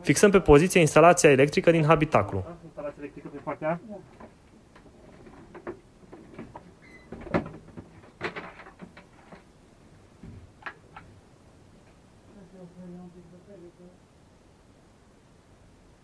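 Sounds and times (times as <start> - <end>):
wiring harness clicks and rustles: 4.2 - 9.5.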